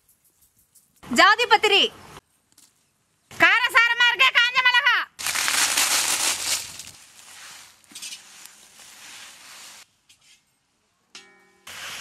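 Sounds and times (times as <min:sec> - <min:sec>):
dried chillies rustling: 0:05.2 - 0:09.8.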